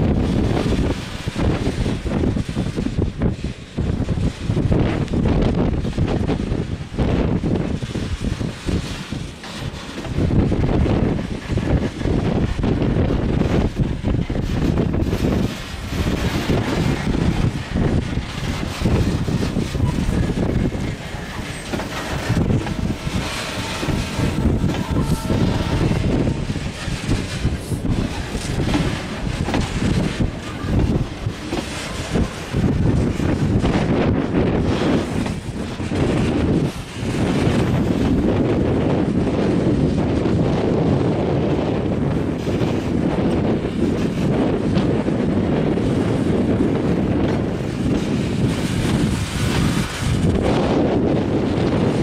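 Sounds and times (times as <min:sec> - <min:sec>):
train wheels rumbling on rails: 0:00.0 - 0:52.0
wind buffeting microphone: 0:00.0 - 0:52.0
wheels clacking: 0:07.6 - 0:40.6.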